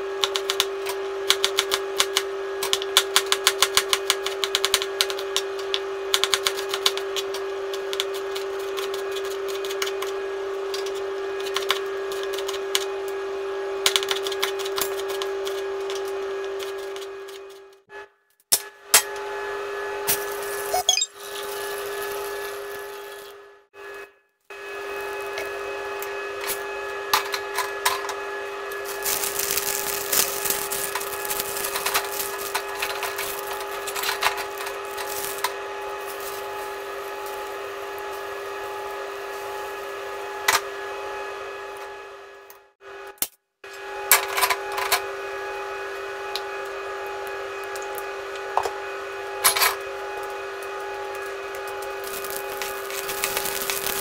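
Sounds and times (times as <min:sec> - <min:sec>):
boiling water pouring and splashing: 0:28.8 - 0:37.5, 0:52.0 - 0:54.0.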